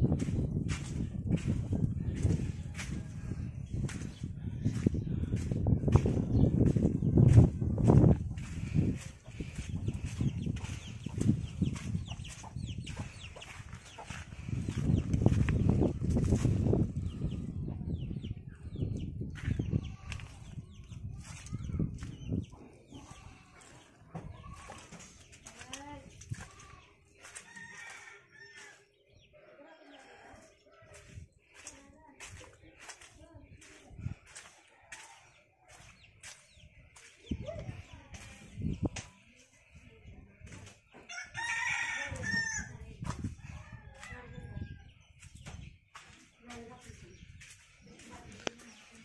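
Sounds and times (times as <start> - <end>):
low thumps of footsteps: 0.0 - 17.6
chickens clucking: 0.0 - 41.2
footsteps on muddy ground: 0.0 - 49.0.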